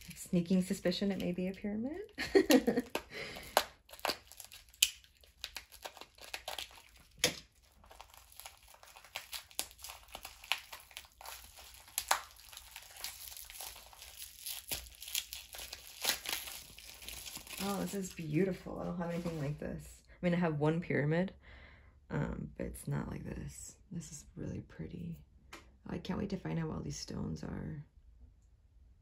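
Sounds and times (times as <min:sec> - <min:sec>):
packing wrap ripping: 0:00.0 - 0:18.3
packing wrap crinkling: 0:00.0 - 0:19.5.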